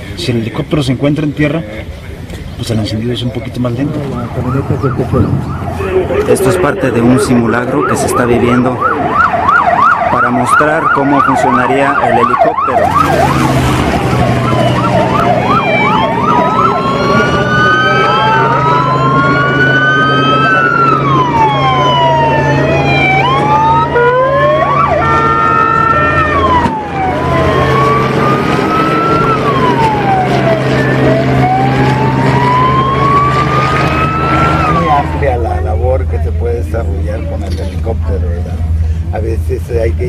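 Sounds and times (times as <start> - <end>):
police sirens wailing: 3.4 - 39.2.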